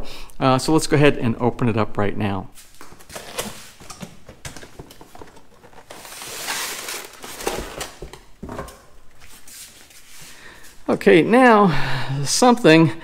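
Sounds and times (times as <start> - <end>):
knocks and rustling of box contents: 2.9 - 9.0.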